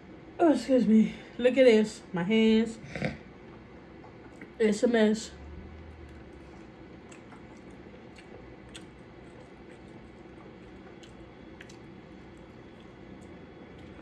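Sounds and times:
low background hum: 0.0 - 14.0
wet chewing and squishes: 3.4 - 4.6, 5.6 - 14.0.

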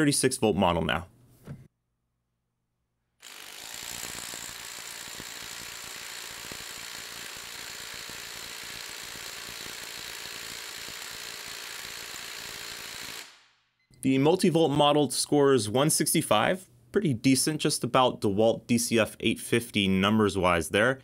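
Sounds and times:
impact driver hammering: 3.2 - 13.4.

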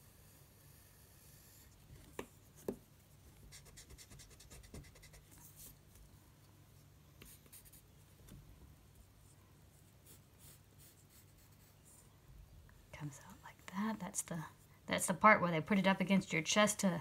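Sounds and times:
pencil scratching on paper: 3.5 - 5.8, 7.2 - 7.8, 9.2 - 12.0.

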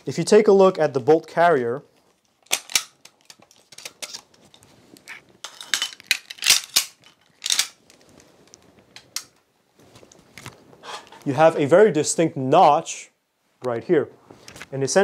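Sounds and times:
rifle action clicks and scrapes: 2.4 - 8.6.

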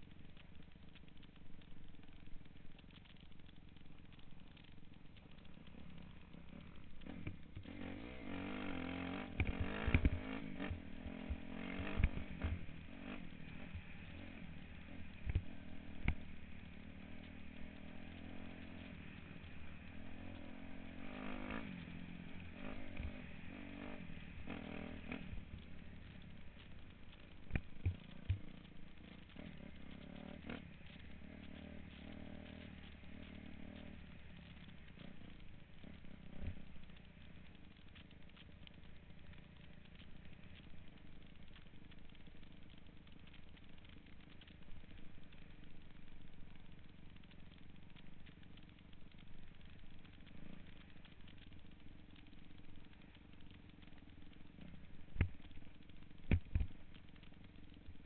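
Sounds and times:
dirt bike engine revving: 5.7 - 27.3, 27.9 - 38.4.

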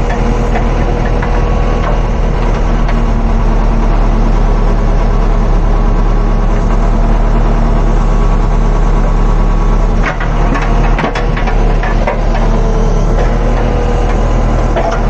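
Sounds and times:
diesel engine running: 0.0 - 15.0
sharp knocks and rattles: 10.0 - 12.6.

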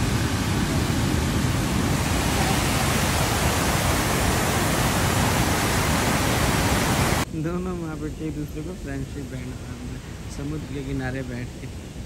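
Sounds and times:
stream rushing over rocks: 0.0 - 7.3.

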